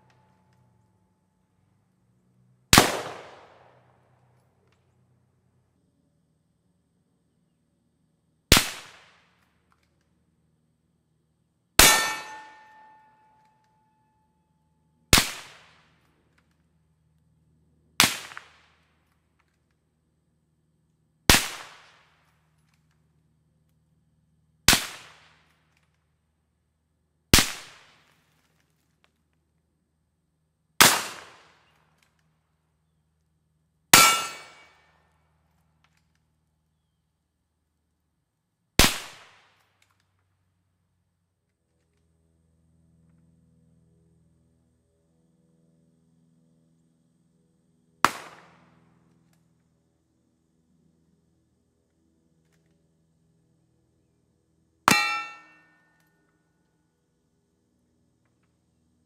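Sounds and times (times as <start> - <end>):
suppressed rifle shots: 2.8 - 3.8, 48.1 - 48.6
steel target ringing: 11.8 - 13.4, 33.9 - 34.8, 54.9 - 55.9.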